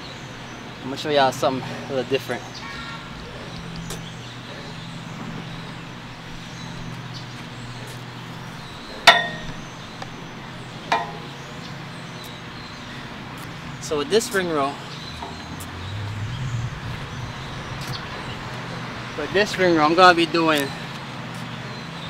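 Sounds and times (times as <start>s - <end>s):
steady low hum: 14.8s - 19.8s.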